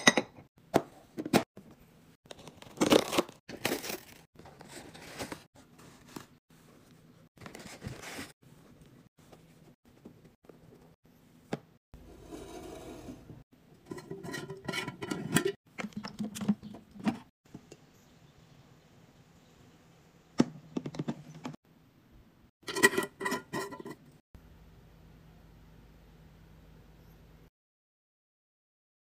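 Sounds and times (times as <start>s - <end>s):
containers clicking and clinking: 13.8s - 17.3s, 22.6s - 24.0s.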